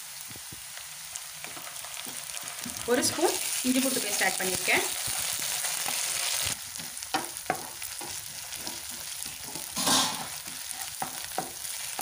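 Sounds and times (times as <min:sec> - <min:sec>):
onions sizzling in hot oil: 0:00.0 - 0:12.0
wooden spatula scraping pan: 0:07.5 - 0:12.0.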